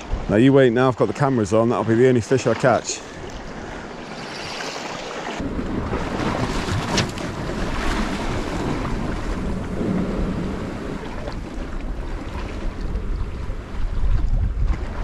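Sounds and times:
sea washing against rocks: 0:04.1 - 0:15.0
wind buffeting microphone: 0:05.4 - 0:15.0.

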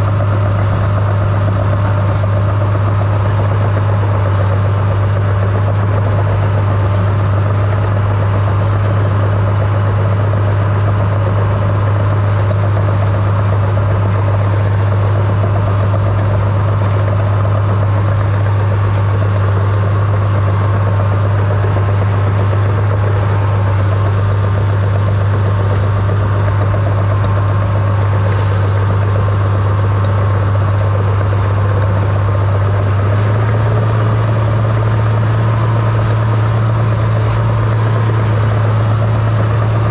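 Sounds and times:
dozer diesel engine running: 0:00.0 - 0:39.9.

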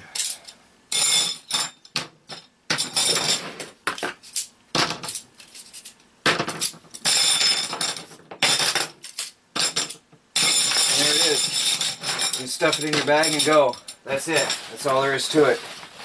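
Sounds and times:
metal poles clinking: 0:06.6 - 0:15.6.

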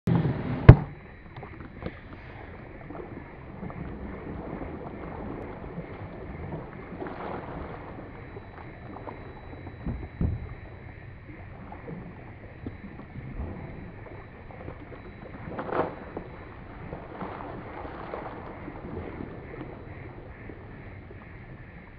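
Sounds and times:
soft low bump: 0:00.1 - 0:01.5, 0:09.6 - 0:11.0
wind and water rushing: 0:00.1 - 0:21.9
sharp knock: 0:00.7 - 0:01.0.

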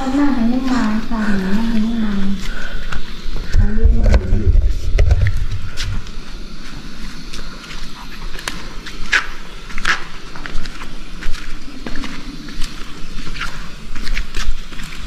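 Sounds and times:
microphone handling rumble: 0:03.4 - 0:06.2
footsteps on rocky floor: 0:04.2 - 0:15.0.

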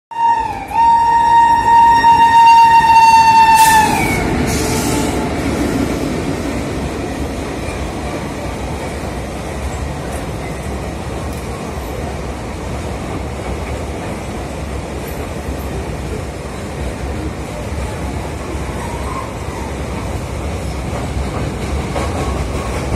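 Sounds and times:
locomotive horn blast: 0:00.1 - 0:04.9
freight train wagons rattling past: 0:00.2 - 0:22.9.

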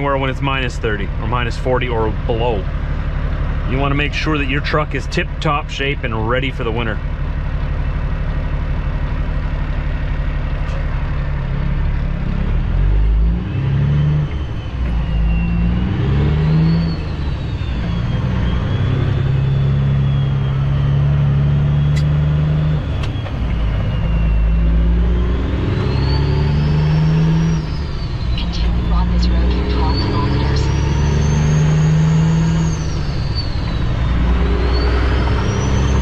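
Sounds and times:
diesel truck engine accelerating: 0:00.0 - 0:36.0
high whine: 0:14.2 - 0:36.0.

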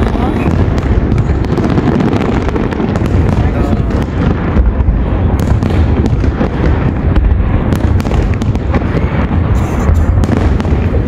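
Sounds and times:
firework shells bursting: 0:00.0 - 0:11.0.

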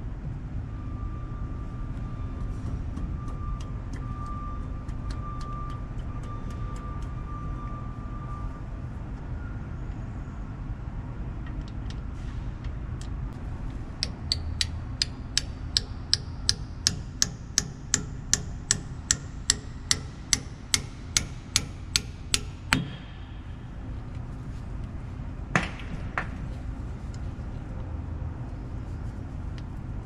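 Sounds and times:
hammer tapping metal pin: 0:14.0 - 0:23.1.

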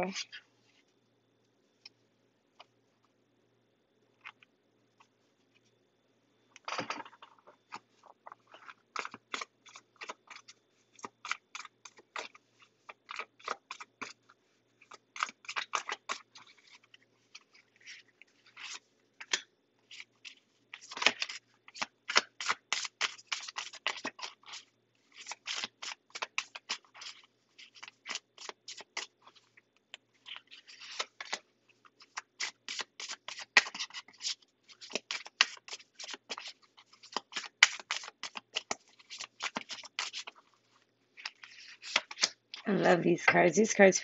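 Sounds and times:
cards being shuffled: 0:14.8 - 0:29.5, 0:30.2 - 0:40.6, 0:41.2 - 0:42.7.

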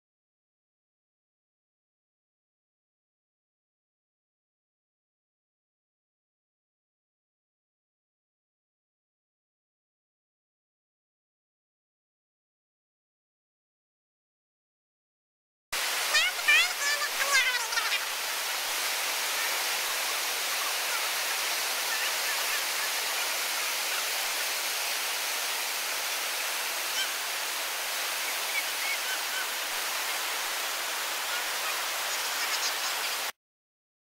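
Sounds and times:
water rushing over rocks: 0:15.8 - 0:33.3.

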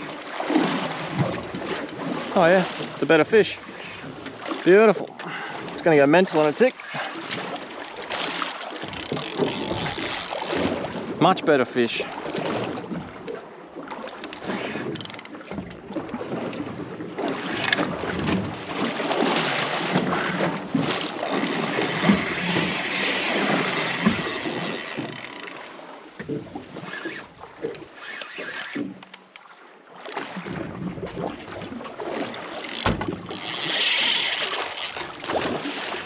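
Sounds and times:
fish thrashing and water splashing: 0:00.0 - 0:36.0.

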